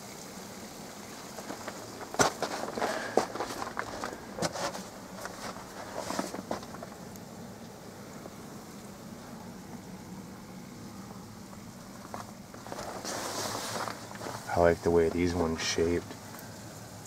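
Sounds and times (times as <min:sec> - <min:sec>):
footsteps crunching on snow: 0:01.2 - 0:07.1, 0:12.0 - 0:15.3.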